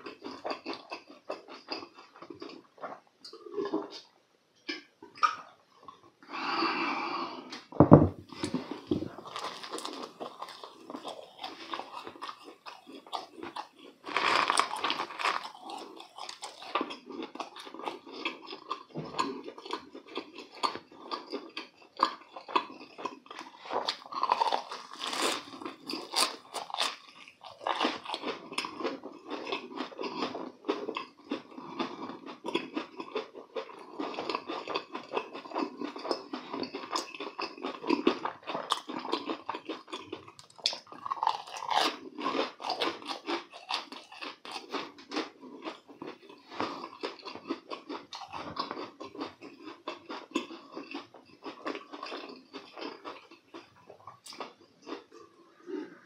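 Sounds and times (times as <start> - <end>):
crunching and chewing food: 0.0 - 56.0.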